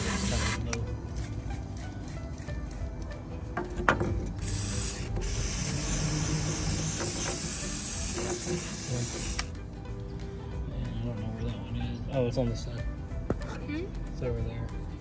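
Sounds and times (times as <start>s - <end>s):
aerosol spray hissing: 4.4s - 9.5s.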